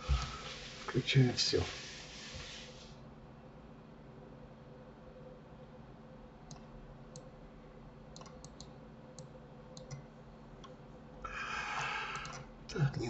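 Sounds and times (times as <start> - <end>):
faint electrical hum: 0.0 - 13.0
computer mouse clicking: 6.5 - 7.3, 8.1 - 10.8, 12.1 - 12.5.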